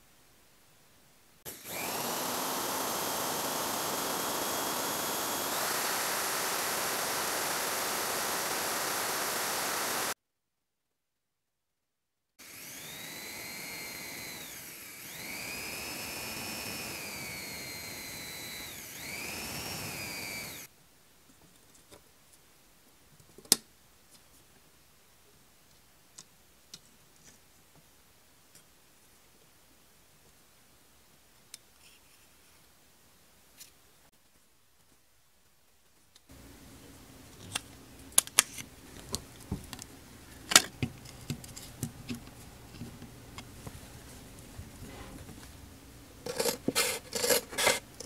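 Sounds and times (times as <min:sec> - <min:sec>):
electric drill whirring: 0:01.5 - 0:10.2, 0:12.4 - 0:20.7.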